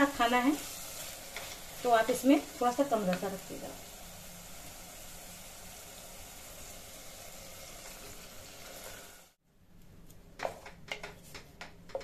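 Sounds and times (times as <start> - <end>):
food sizzling in oil: 0.0 - 9.4.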